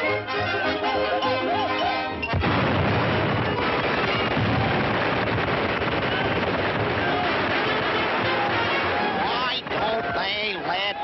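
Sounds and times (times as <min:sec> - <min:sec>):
continuous noisy din: 0:00.0 - 0:11.0
sudden crash: 0:02.3 - 0:08.4.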